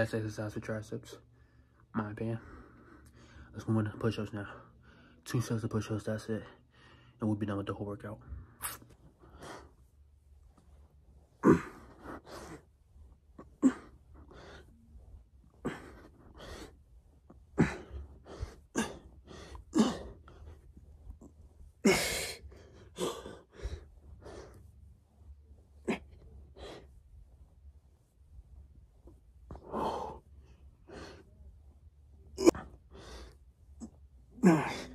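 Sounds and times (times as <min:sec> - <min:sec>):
man breathing hard: 0:11.2 - 0:25.0, 0:29.5 - 0:31.3, 0:32.4 - 0:34.9.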